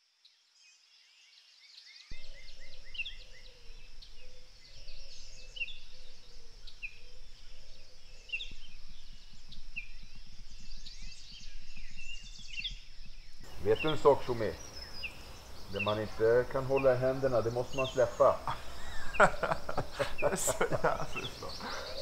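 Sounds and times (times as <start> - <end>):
songbirds chirping: 0.1 - 22.0.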